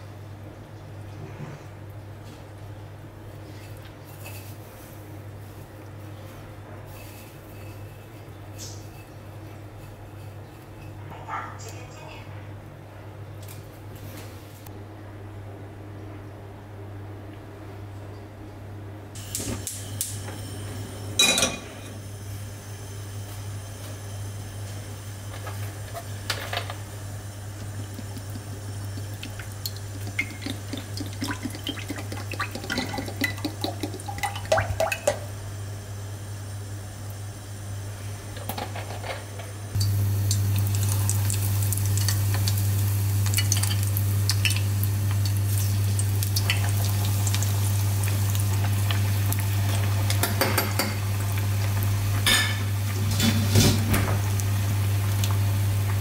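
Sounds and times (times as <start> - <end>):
oil sizzling and crackling: 19.2 - 39.0, 39.7 - 56.0
oil pouring into saucepan: 27.6 - 35.3.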